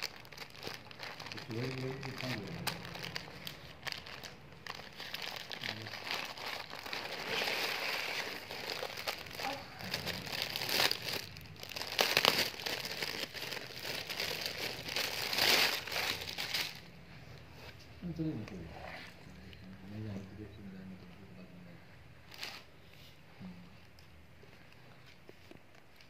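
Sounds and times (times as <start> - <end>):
plastic packaging crinkling: 0.0 - 16.9.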